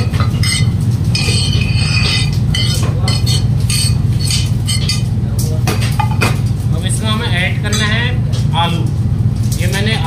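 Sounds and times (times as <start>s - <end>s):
low background hum: 0.0s - 10.0s
metal spoon scraping into steel bowl: 0.4s - 5.1s.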